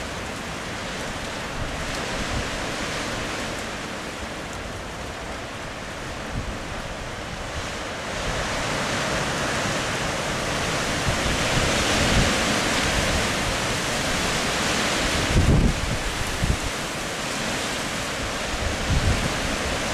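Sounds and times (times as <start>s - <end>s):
wind buffeting the microphone: 1.5s - 3.5s, 5.8s - 19.9s
wind rushing: 15.0s - 16.7s.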